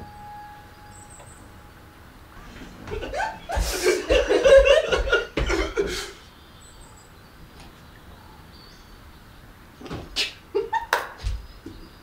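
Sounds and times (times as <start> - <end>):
faint bird chirp: 0.0 - 3.5, 6.2 - 9.6
people laughing: 2.8 - 6.2.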